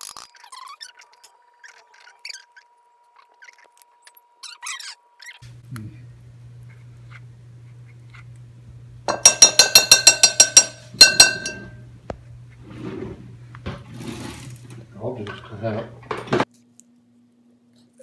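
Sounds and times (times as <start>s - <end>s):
spoon clinking on glass bowl: 9.1s - 11.8s.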